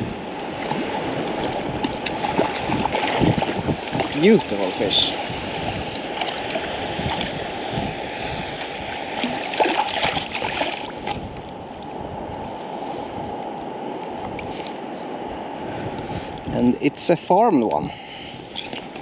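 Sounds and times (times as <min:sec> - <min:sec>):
water splashes: 0:00.6 - 0:11.2
water sloshing around net: 0:09.2 - 0:11.2.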